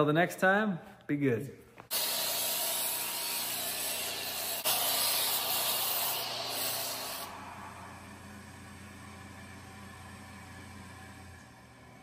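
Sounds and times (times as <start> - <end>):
pressure washer jet hissing: 1.9 - 8.2
steady hum: 1.9 - 12.0.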